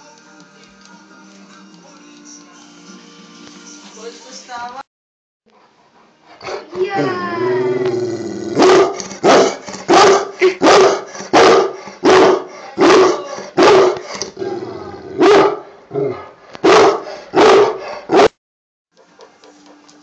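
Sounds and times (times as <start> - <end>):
dog barking: 8.6 - 14.1, 15.2 - 18.4.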